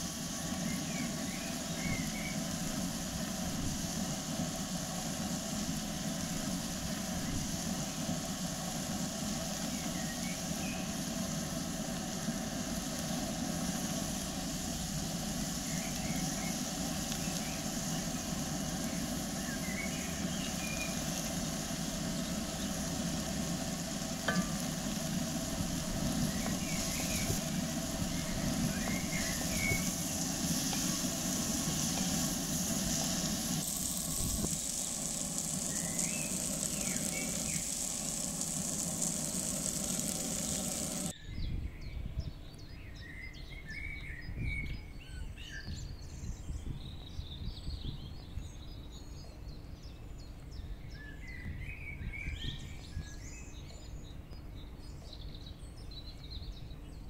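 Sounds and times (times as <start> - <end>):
vegetables sizzling in a pot: 0.0 - 41.2
wooden spoon stirring: 22.3 - 41.1.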